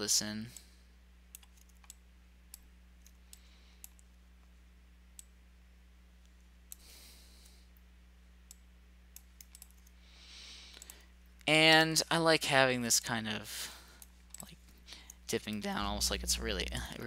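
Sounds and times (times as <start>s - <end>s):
low electrical hum: 0.0s - 17.0s
computer mouse clicks: 1.3s - 4.1s, 8.4s - 10.0s, 10.7s - 11.0s.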